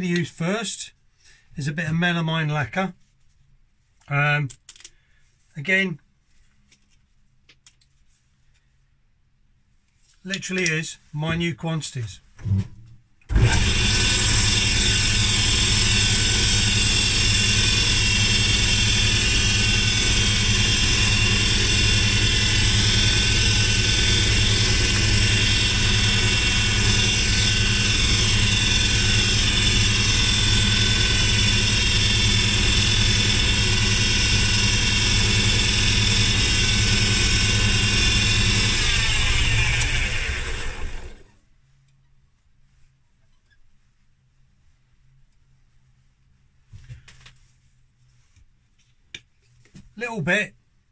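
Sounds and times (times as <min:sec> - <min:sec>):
wood lathe motor running: 0:13.3 - 0:41.3.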